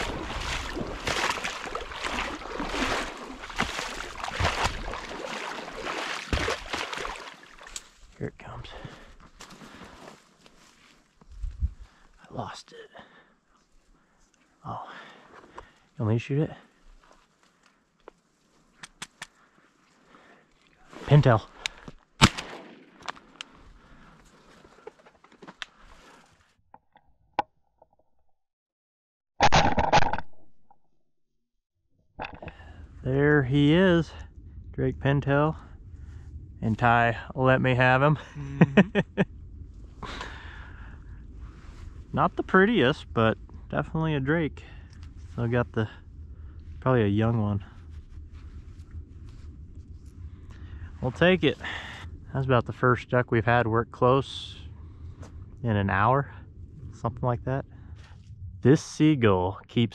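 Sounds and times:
wading through shallow water: 0.0 - 12.2, 32.6 - 52.3
sharp click: 18.8 - 19.3
shotgun shot tail: 22.2 - 23.4.

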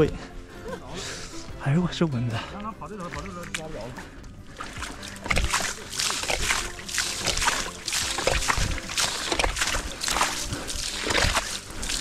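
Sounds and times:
hands splashing muddy water: 3.0 - 12.0.

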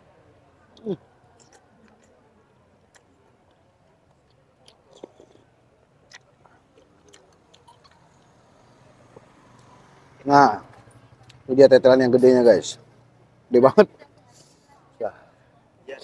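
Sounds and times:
close-up chewing: 1.4 - 9.7.

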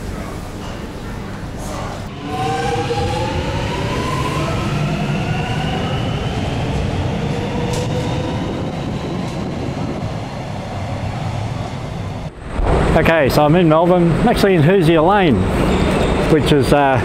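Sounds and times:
low rumble: 7.1 - 16.3.

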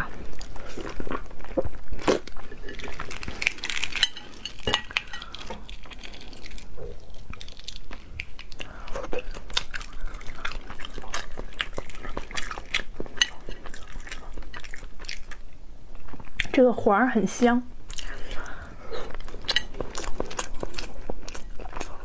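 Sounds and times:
egg shell cracking and peeling: 2.1 - 13.4.

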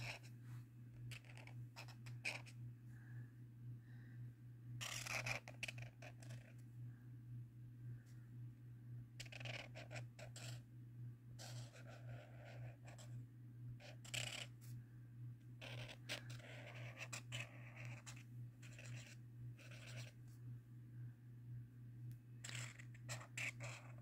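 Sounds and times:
marker scratching on paper: 0.0 - 0.3, 1.0 - 2.6, 4.8 - 6.6, 9.2 - 10.6, 11.4 - 13.2, 13.8 - 14.7, 15.6 - 20.4, 22.4 - 24.0
faint low hum: 0.0 - 24.0.

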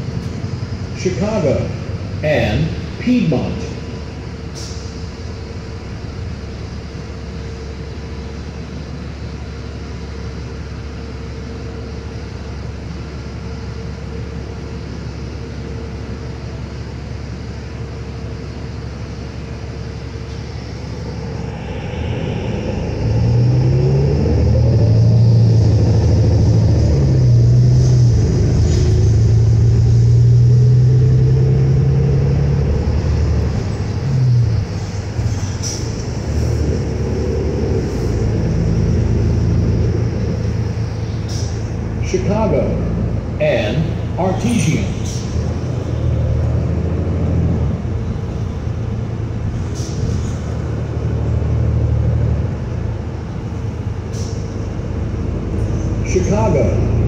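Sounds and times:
bus engine rumbling: 0.0 - 57.0
transmission whines: 13.2 - 49.4.

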